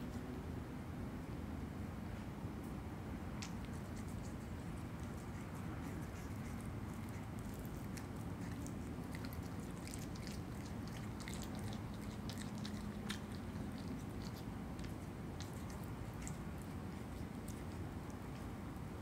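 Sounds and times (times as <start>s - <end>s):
low background hum: 0.0s - 19.0s
animal chewing wet smacks: 3.4s - 19.0s.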